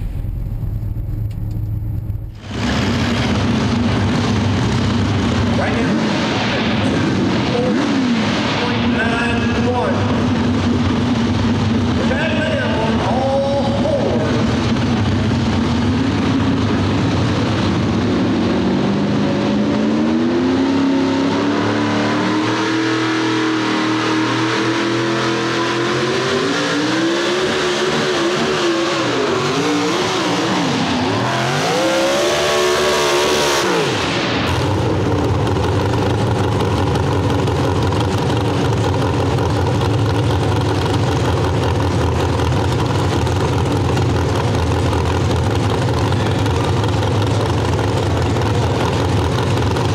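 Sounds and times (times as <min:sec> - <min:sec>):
engine idling: 0:00.0 - 0:19.8, 0:34.1 - 0:49.9
truck engine revving: 0:00.0 - 0:49.9.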